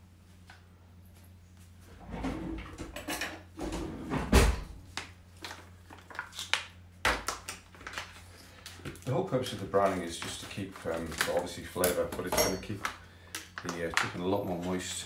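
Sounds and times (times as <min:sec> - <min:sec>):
items rustling and knocking: 0:09.8 - 0:14.8.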